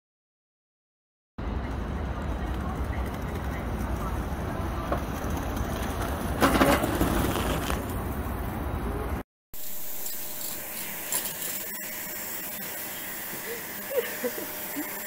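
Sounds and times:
skateboard wheels rolling over paving: 2.4s - 8.5s
vacuum cleaner hiss: 9.6s - 15.0s.

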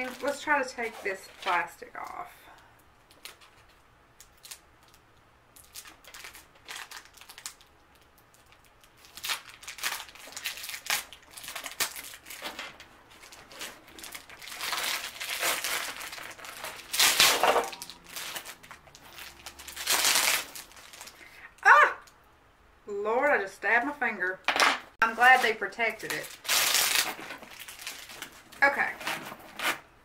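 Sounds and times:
plastic wrapping crinkling: 0.0s - 2.2s, 3.0s - 21.4s, 25.0s - 29.2s.

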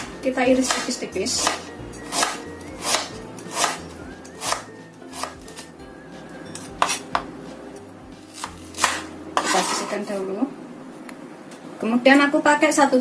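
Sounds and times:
knife chopping on wooden board: 0.0s - 5.7s, 6.6s - 7.4s, 8.3s - 9.9s.

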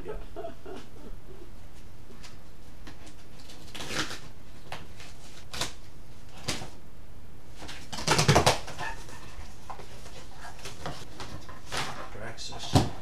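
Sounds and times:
cardboard box tape ripping: 3.1s - 6.8s, 7.6s - 8.9s.

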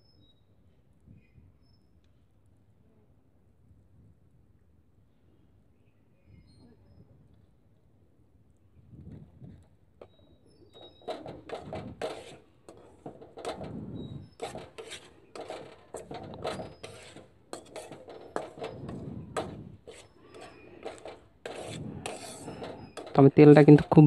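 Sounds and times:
metal spoon scraping frying pan: 10.8s - 24.0s.

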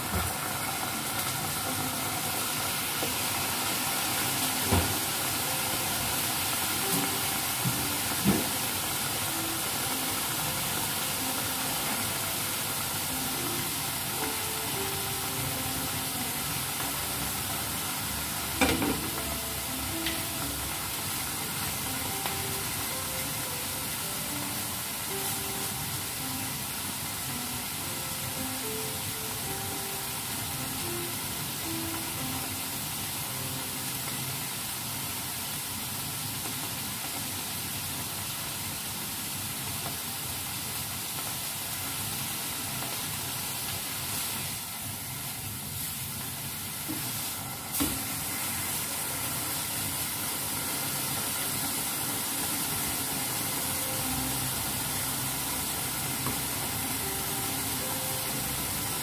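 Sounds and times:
faint background music: 0.0s - 45.3s, 46.6s - 59.0s
food sizzling in pans: 0.0s - 59.0s.

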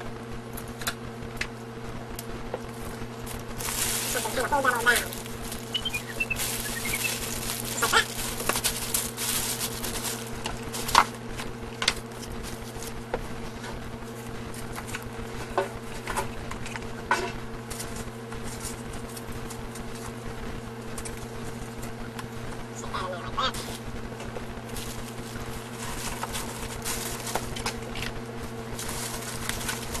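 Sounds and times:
low hum: 2.0s - 10.8s
gift wrap crinkling: 2.7s - 11.4s, 24.7s - 30.0s.

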